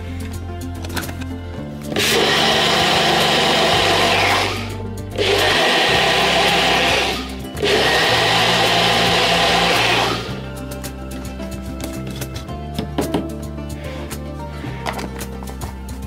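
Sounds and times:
blender motor whirring: 0:01.9 - 0:10.5.

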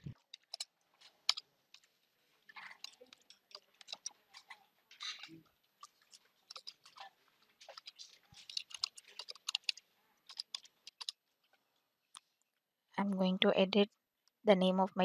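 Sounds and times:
computer keyboard typing: 0:02.7 - 0:04.2, 0:06.5 - 0:07.0, 0:07.6 - 0:11.2.

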